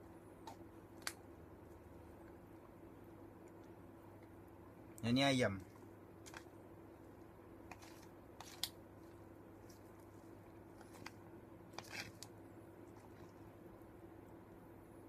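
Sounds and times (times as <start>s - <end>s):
low room hum: 0.0s - 15.0s
fork stirring noodles in cup: 7.6s - 13.4s.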